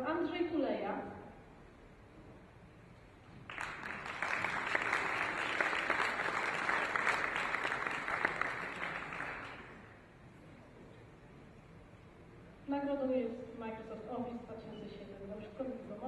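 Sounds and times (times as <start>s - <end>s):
audience applauding: 3.5s - 9.9s.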